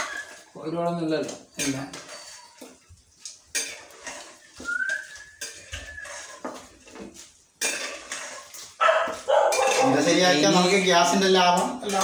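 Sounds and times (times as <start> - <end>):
thin whistle-like tone: 0.0 - 0.4, 4.6 - 6.3
metal utensils clattering on a pot: 1.2 - 12.0.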